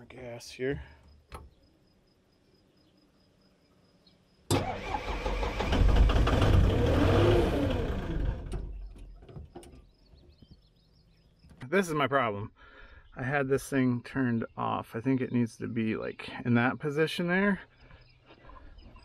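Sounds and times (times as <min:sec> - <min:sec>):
diesel engine cranking and starting: 0:04.5 - 0:09.8.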